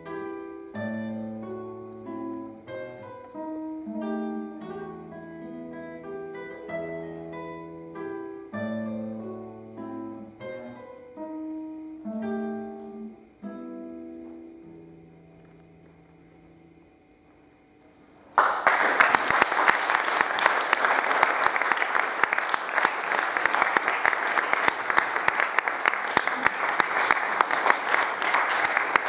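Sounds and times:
classical guitar playing: 0.0s - 17.6s
audience applause: 18.4s - 29.0s.

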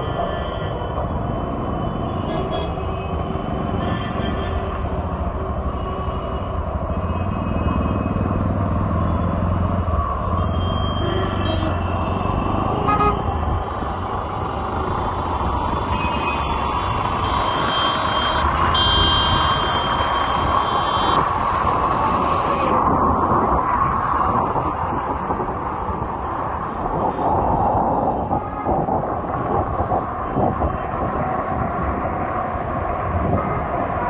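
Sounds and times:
road noise rushing: 0.0s - 34.0s
traffic engines running: 0.0s - 34.0s
vehicle horns honking: 10.6s - 11.9s, 12.8s - 13.2s, 17.2s - 21.2s.

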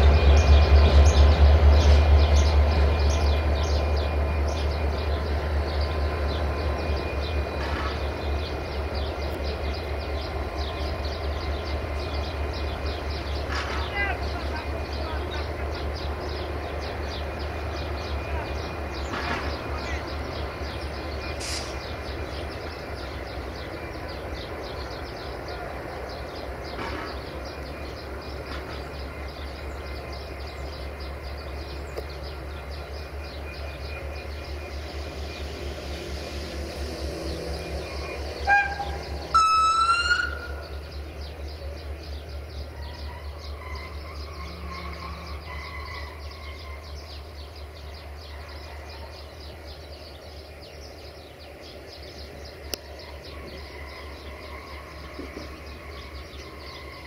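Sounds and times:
diesel locomotive engine throbbing: 0.0s - 57.0s
locomotive horn: 38.0s - 40.7s.

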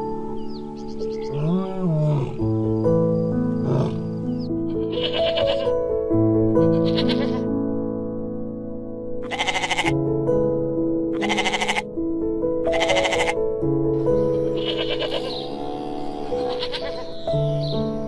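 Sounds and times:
background music with sustained notes: 0.0s - 18.0s
sheep bleating: 4.8s - 5.7s, 6.8s - 7.4s, 9.2s - 9.9s, 11.2s - 11.8s, 12.7s - 13.4s, 14.4s - 17.2s.

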